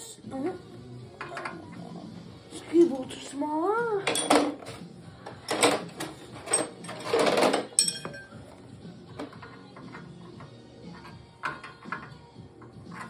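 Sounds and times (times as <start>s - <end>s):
hand tools clattering and scraping: 4.0s - 13.0s
sharp metallic clink: 7.7s - 8.4s.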